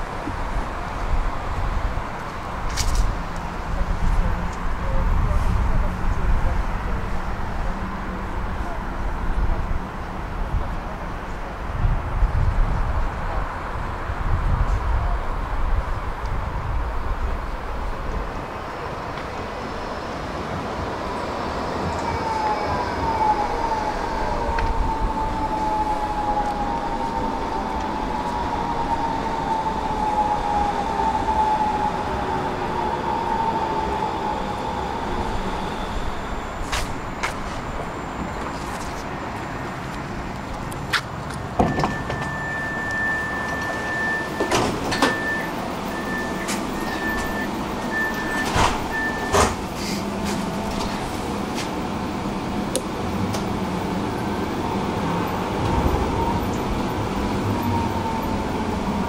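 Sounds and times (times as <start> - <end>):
tram motor whine: 15.6 - 59.0
high door warning tone: 41.5 - 51.0.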